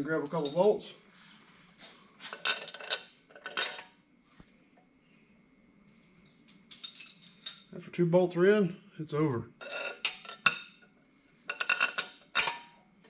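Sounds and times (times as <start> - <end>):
metal bolts clinking: 6.5 - 7.8, 11.5 - 12.7.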